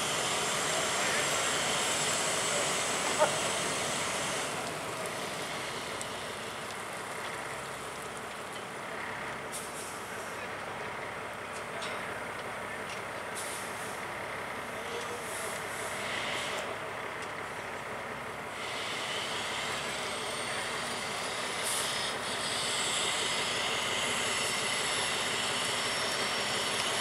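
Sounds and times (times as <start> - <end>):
heavy truck engine: 0.0 - 27.0.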